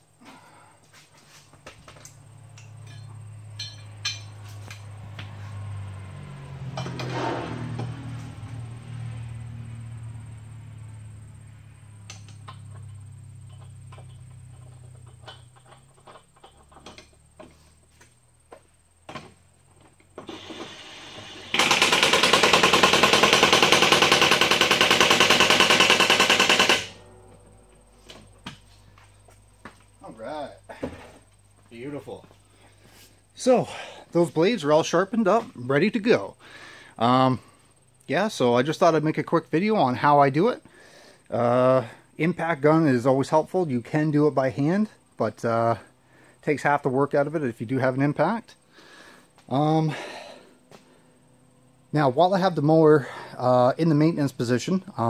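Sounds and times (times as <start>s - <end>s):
impact wrench rattling: 20.1s - 27.2s
low steady hum: 26.5s - 38.6s.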